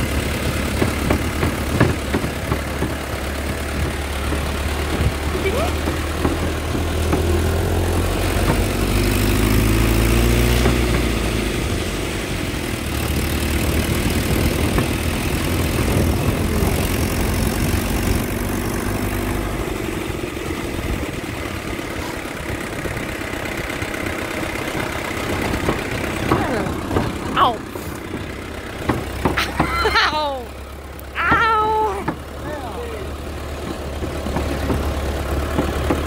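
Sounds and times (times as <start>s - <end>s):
road and wind noise: 0.0s - 36.0s
truck engine running: 0.0s - 36.0s.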